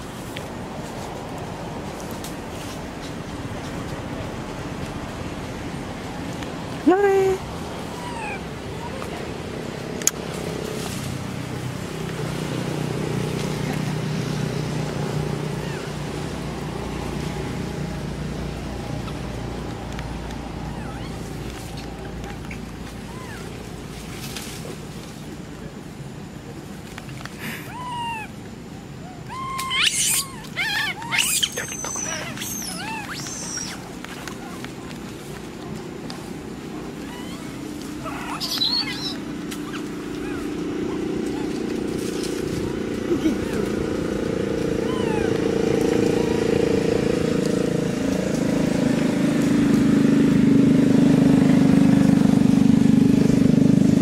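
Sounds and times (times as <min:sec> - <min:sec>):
monkeys cooing and squealing: 0:07.8 - 0:09.2, 0:15.4 - 0:16.2, 0:20.5 - 0:23.6, 0:27.4 - 0:28.4, 0:29.0 - 0:34.8, 0:36.6 - 0:42.0, 0:42.7 - 0:45.5
motor engine throbbing: 0:36.6 - 0:54.0.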